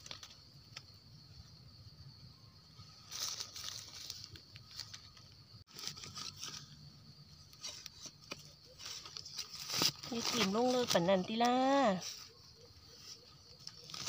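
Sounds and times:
stick digging in dry leaves and soil: 3.0 - 12.4, 13.1 - 14.0.

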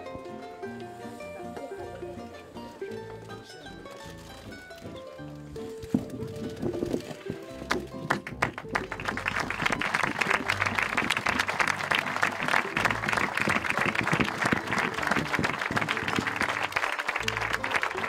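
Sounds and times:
crowd applauding: 7.6 - 18.0.

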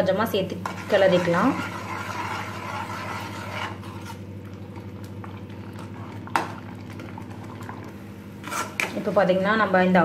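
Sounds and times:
water boiling: 0.0 - 10.0
steel spoon stirring: 0.6 - 4.2, 8.4 - 9.0.

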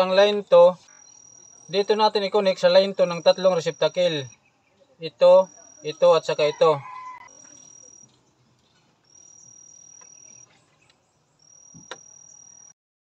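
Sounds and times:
high insect trill: 0.0 - 8.2, 9.0 - 10.7, 11.4 - 12.8.

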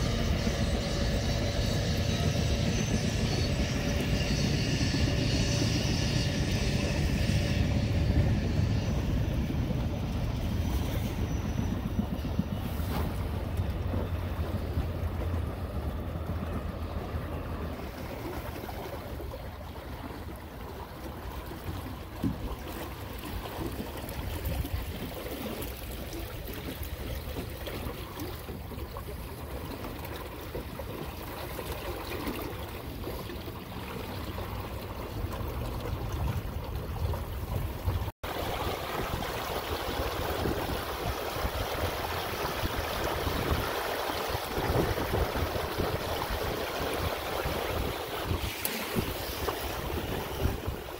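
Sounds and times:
wind rumble on microphone: 0.0 - 20.8, 21.7 - 31.2, 34.3 - 50.9
water rushing along a hull: 0.0 - 50.9.

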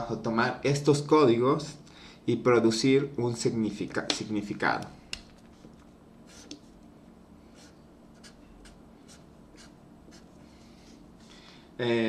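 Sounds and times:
marker scratching on paper: 5.5 - 6.7, 7.5 - 10.4.

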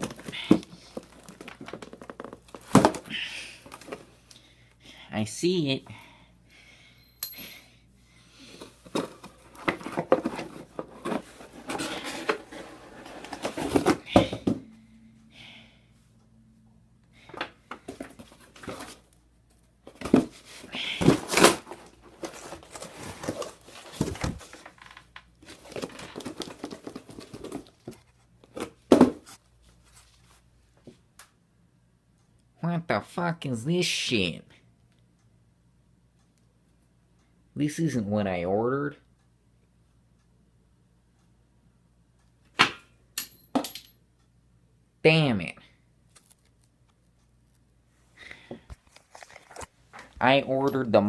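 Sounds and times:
cardboard rustling and crinkling: 0.0 - 3.1, 8.8 - 14.5, 17.8 - 19.1, 19.9 - 30.4, 48.8 - 50.1.

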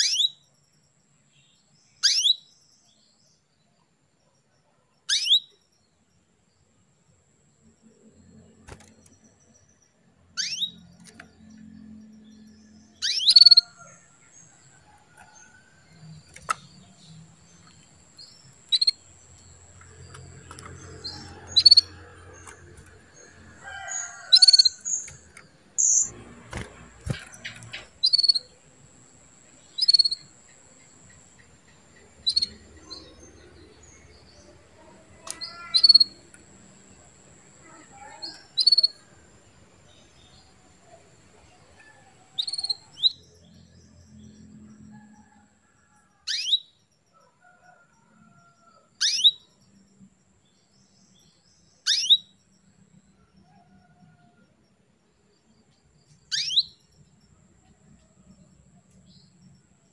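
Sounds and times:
canary chirping: 0.0 - 0.5, 2.0 - 2.5, 5.1 - 5.6, 9.1 - 39.0, 41.8 - 43.6, 46.3 - 46.8, 49.0 - 49.5, 51.8 - 52.4, 56.3 - 57.0.

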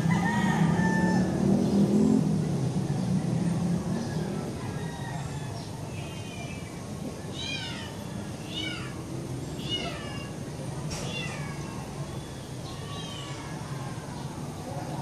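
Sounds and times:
cat meowing: 7.3 - 10.4, 11.0 - 12.1, 12.7 - 14.2.

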